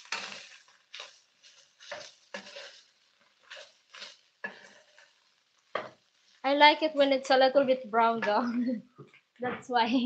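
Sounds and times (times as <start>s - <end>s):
wooden spatula scraping pan: 0.0s - 5.2s
faint sizzling: 0.0s - 10.0s.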